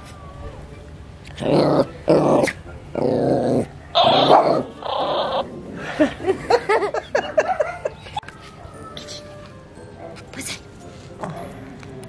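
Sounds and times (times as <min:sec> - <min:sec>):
small dog growling and barking: 0:01.4 - 0:05.7.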